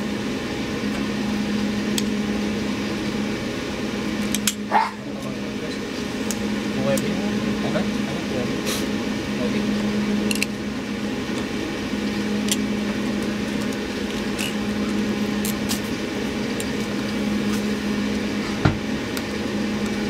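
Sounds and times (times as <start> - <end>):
low mechanical hum: 0.0 - 20.0
utility knife and cable clicks: 10.3 - 10.5.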